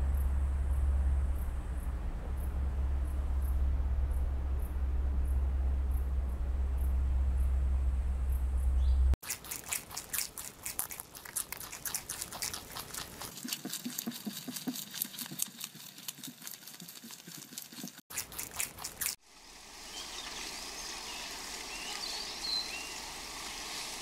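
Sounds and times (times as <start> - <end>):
low steady hum: 0.0 - 13.4
rabbit chewing grass: 9.2 - 24.0.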